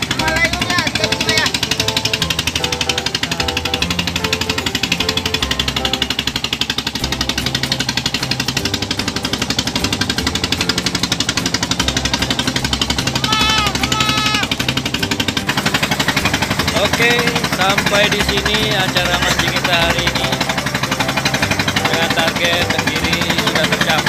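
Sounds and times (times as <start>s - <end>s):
background music: 0.0s - 24.0s
boat engine chugging: 0.0s - 24.0s
short high pitched calls: 13.2s - 14.5s.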